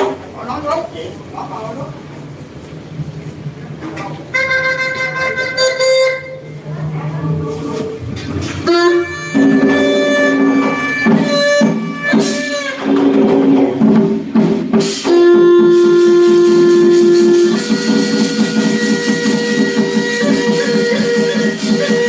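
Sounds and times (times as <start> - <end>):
light percussion: 2.4 - 22.0
long held melody notes: 4.3 - 7.3, 15.1 - 22.0.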